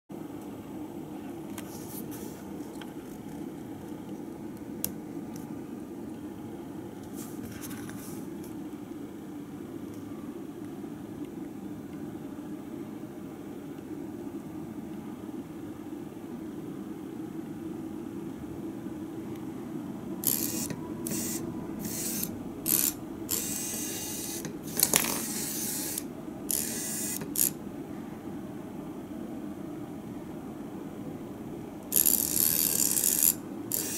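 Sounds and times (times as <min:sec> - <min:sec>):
low room hum: 0:00.1 - 0:33.9
small gear motors whirring: 0:20.2 - 0:27.6, 0:31.9 - 0:33.9.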